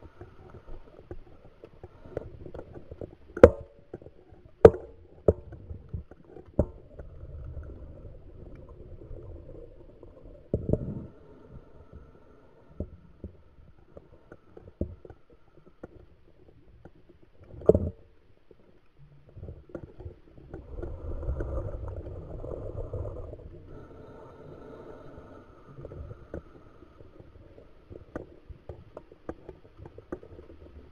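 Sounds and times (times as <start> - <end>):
underwater bubbles rumbling: 0.0 - 30.9.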